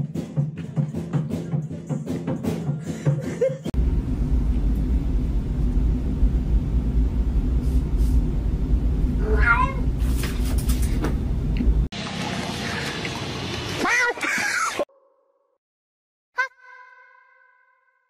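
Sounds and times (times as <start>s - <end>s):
music: 0.0s - 3.7s
steady low rumble: 3.8s - 11.9s
cat meowing: 9.2s - 9.8s.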